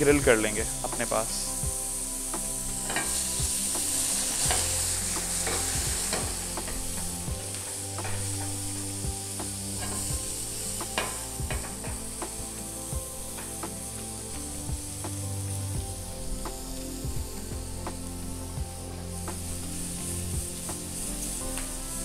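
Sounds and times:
prawns sizzling on grill pan: 0:00.0 - 0:22.0
tongs tapping pan: 0:02.8 - 0:07.1, 0:07.7 - 0:12.3.

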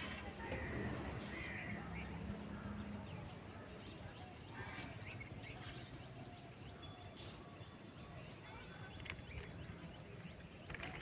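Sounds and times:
faint outdoor ambience: 0:00.0 - 0:11.0.

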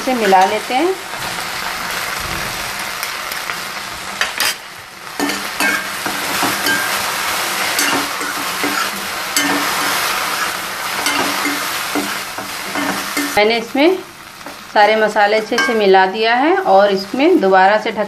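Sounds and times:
okra sizzling in oil: 0:00.0 - 0:18.0
spoon scraping pan: 0:05.2 - 0:13.4.

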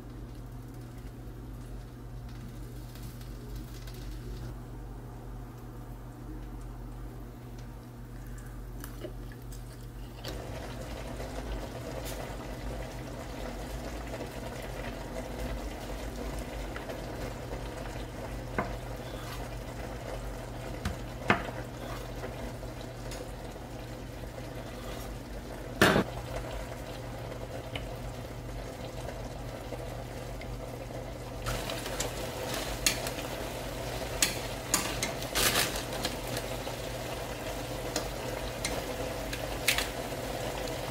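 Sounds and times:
low hum and hiss: 0:00.0 - 0:40.9
salad leaves rustling in strainer: 0:34.6 - 0:36.6.

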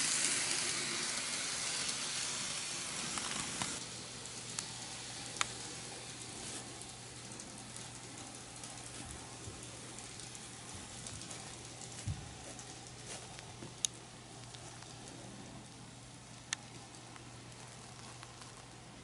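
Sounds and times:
model train rolling hiss: 0:00.0 - 0:14.3.

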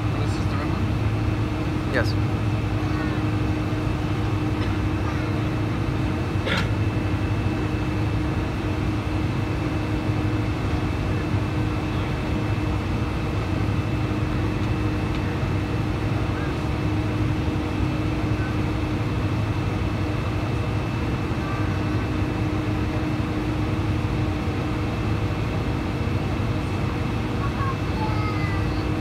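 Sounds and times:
air-conditioning rush: 0:00.0 - 0:29.0
jet engines idling: 0:00.0 - 0:29.0.

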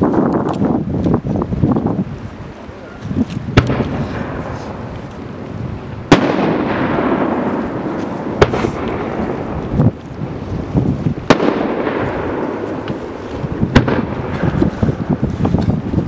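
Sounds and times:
rolling rumble: 0:00.0 - 0:16.0
firework shells bursting: 0:03.5 - 0:10.3, 0:11.1 - 0:15.2.

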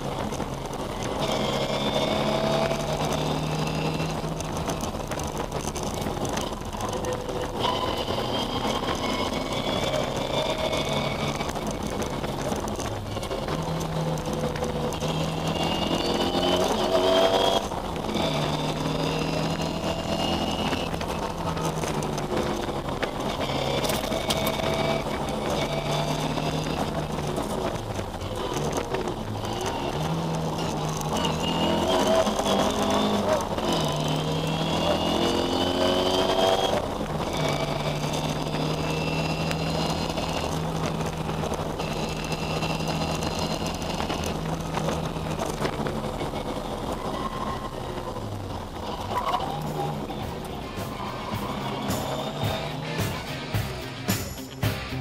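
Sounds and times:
rally car engine revving: 0:00.0 - 0:55.0.

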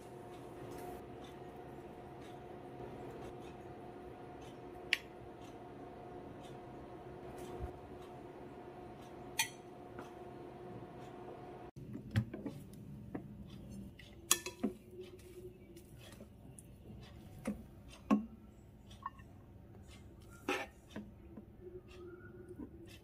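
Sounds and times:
faint steady hum: 0:00.0 - 0:11.8.

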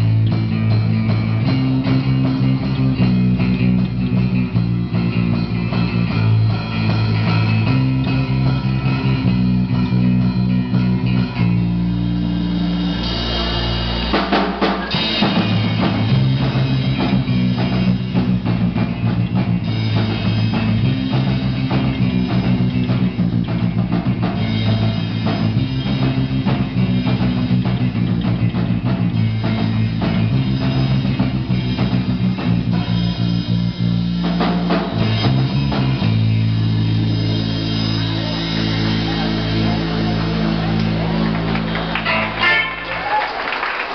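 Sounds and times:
bass guitar: 0:00.0 - 0:43.9
drum kit: 0:00.0 - 0:43.9
electric guitar: 0:00.0 - 0:43.9.

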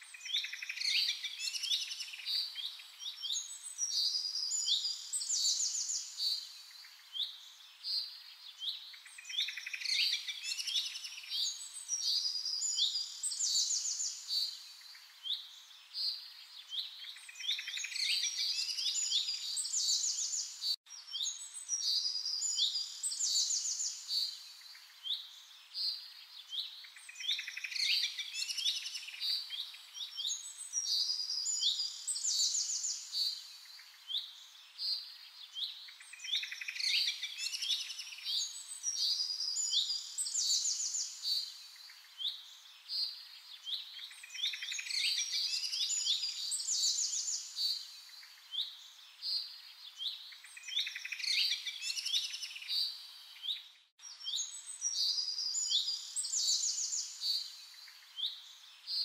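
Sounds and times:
faint steady hiss: 0:00.0 - 0:59.0
songbirds singing: 0:00.0 - 0:59.0.

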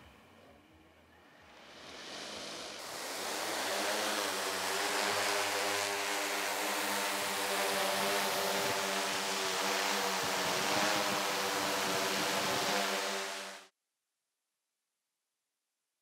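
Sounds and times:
drone rotors buzzing: 0:01.4 - 0:13.7.

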